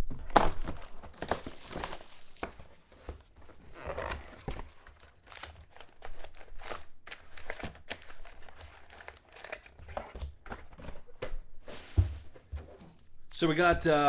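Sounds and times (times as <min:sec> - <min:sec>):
foil wrapper crinkling and tearing: 0:00.2 - 0:02.6, 0:05.0 - 0:09.8.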